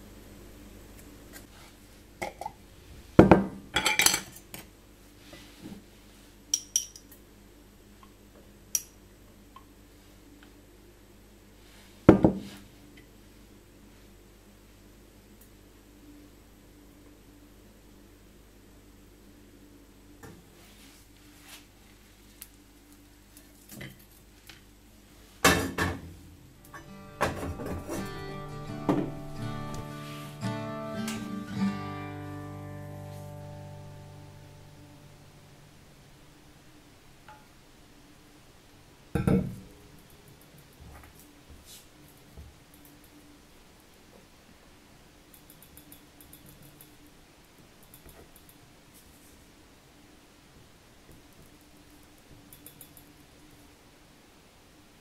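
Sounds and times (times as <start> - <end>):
pots and utensils clattering: 3.7 - 4.6
acoustic guitar music: 26.7 - 35.9.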